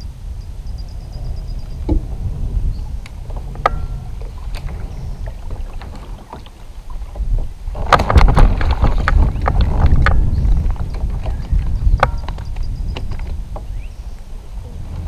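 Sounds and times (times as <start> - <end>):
water along hull: 0.0 - 15.0
wind rumble on microphone: 0.0 - 15.0
knocking and clatter: 7.1 - 13.4.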